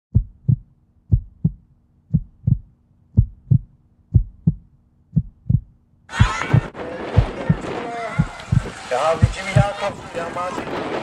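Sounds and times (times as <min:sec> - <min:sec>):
heartbeat thumps: 0:00.1 - 0:09.8.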